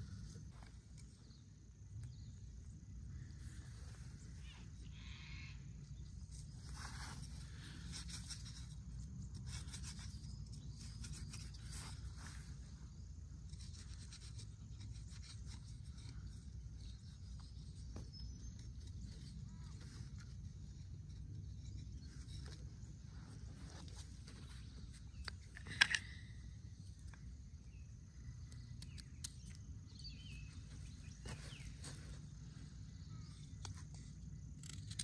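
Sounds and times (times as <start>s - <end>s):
leaves rubbing and rustling: 6.2s - 12.8s.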